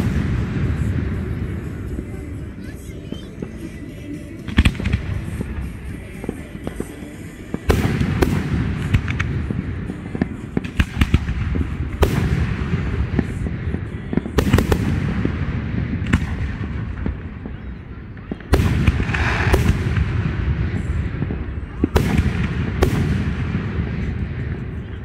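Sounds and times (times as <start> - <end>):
fireworks bangs and crackles: 0.0 - 25.0.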